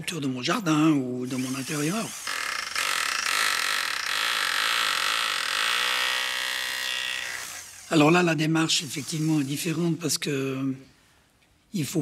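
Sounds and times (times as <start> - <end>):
electric drill drilling into stone: 1.2 - 9.8.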